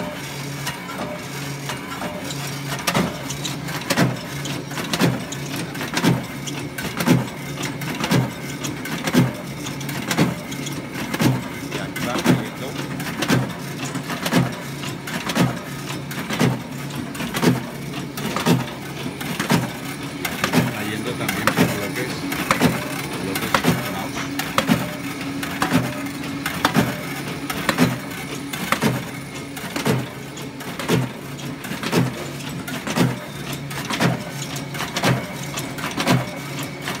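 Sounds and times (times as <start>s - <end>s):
motor hum: 1.0s - 37.0s.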